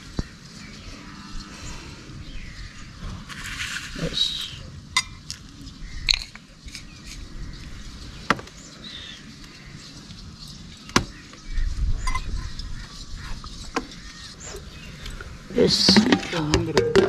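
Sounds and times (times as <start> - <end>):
steel bowls and plates clinking: 15.8 - 17.0.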